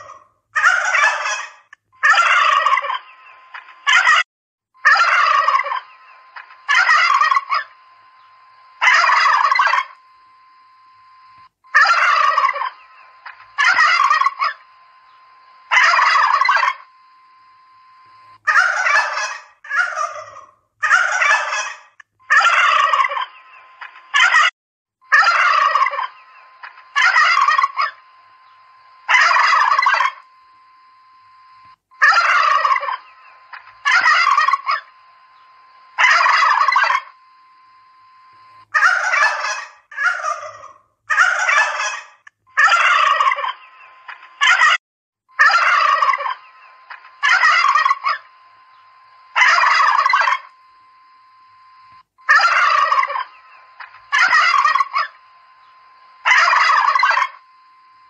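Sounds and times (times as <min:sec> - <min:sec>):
turkeys gobbling: 0:00.0 - 0:04.2, 0:04.8 - 0:08.2, 0:08.8 - 0:10.0, 0:11.7 - 0:14.7, 0:15.6 - 0:16.9, 0:18.4 - 0:24.5, 0:25.1 - 0:28.4, 0:29.0 - 0:30.2, 0:32.0 - 0:35.0, 0:35.9 - 0:37.2, 0:38.7 - 0:44.8, 0:45.4 - 0:48.3, 0:49.3 - 0:50.5, 0:52.2 - 0:55.2, 0:56.2 - 0:57.4.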